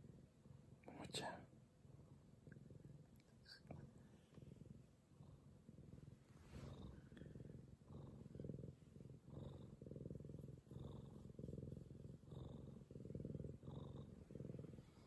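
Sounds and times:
cat purring: 0.0s - 15.0s.

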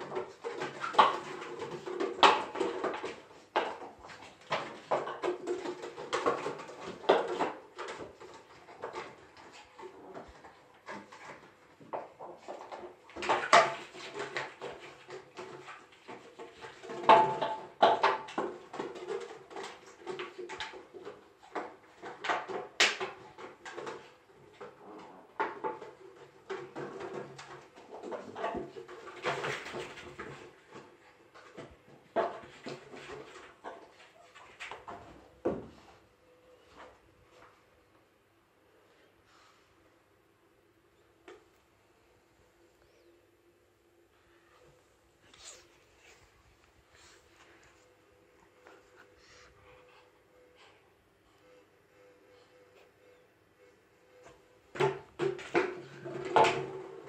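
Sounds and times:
plastic bottle crackling and clattering: 0.0s - 35.7s, 54.7s - 57.0s.

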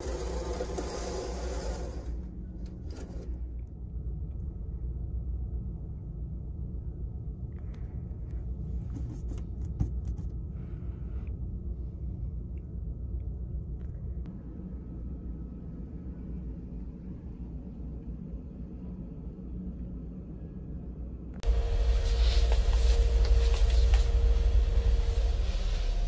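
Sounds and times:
ship engine low rumble: 10.3s - 26.0s.

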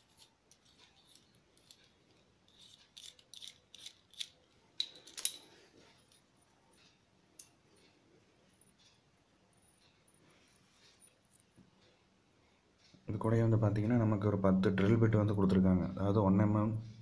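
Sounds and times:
small metal parts clicking and rattling: 0.0s - 6.2s.

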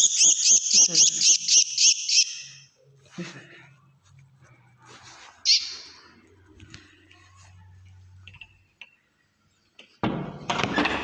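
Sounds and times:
small bird calling: 0.0s - 2.7s, 5.5s - 6.0s
soft handling rustling: 3.0s - 8.6s.

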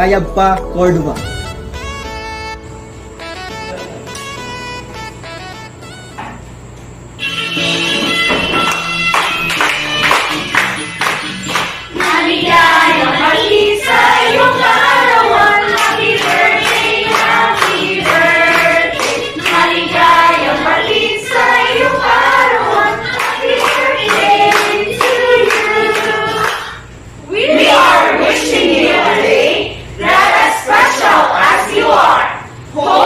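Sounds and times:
people clapping in rhythm: 8.4s - 26.9s
group of people singing: 11.9s - 33.0s.

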